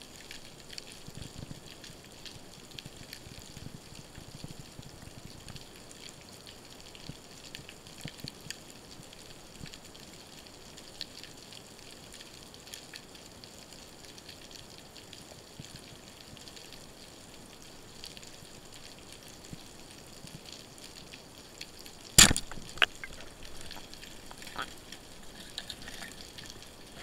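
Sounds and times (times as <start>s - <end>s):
faint crackling clicks: 0.2s - 9.9s, 17.5s - 27.0s.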